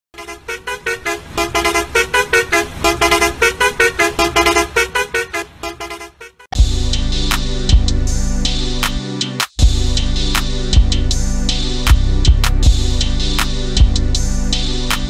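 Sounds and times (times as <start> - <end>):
musical vehicle horn beeping: 0.1 - 6.6.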